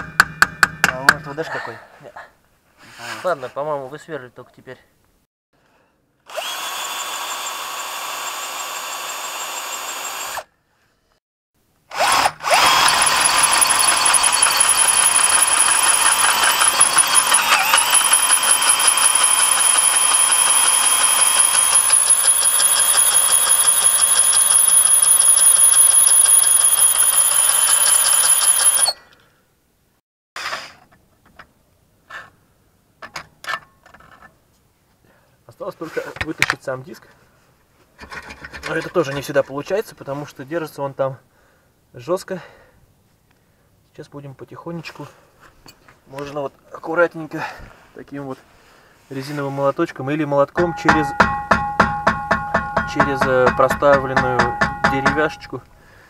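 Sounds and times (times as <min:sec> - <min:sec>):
power drill whining: 0:06.3 - 0:10.5, 0:11.9 - 0:29.0.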